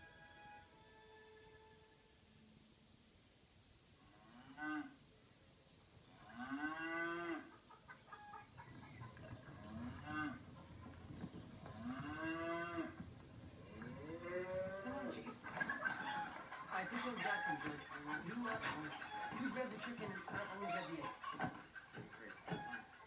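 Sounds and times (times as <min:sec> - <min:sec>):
cattle mooing: 0:09.5 - 0:10.4, 0:11.7 - 0:13.0, 0:13.6 - 0:15.2.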